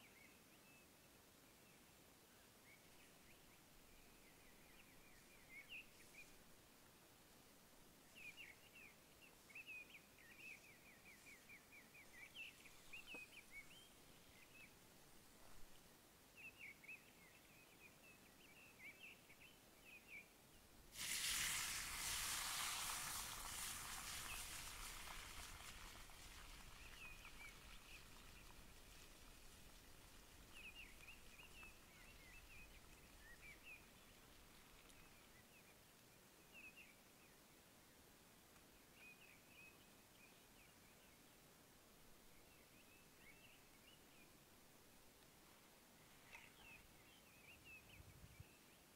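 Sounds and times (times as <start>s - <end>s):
small birds chirping: 8.1s - 14.8s, 15.4s - 37.4s, 46.0s - 48.9s
potatoes sizzling in hot oil: 20.9s - 28.2s.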